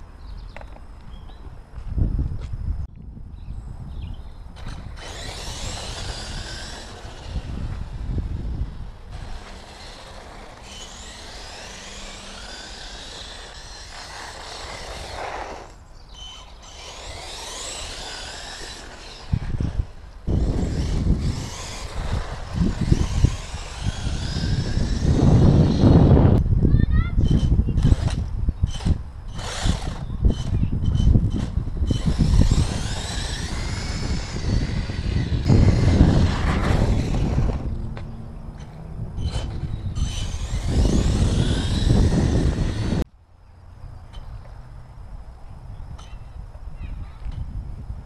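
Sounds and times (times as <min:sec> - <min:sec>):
electric motor whining: 0:04.6 - 0:26.4, 0:27.2 - 0:43.1.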